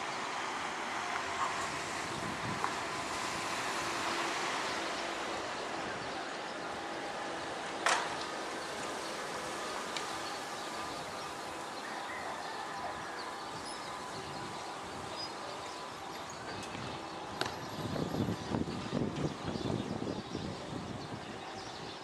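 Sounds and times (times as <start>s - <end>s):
low rumbling gusts: 0.0s - 7.7s, 12.9s - 22.0s
city background hiss: 0.0s - 17.7s.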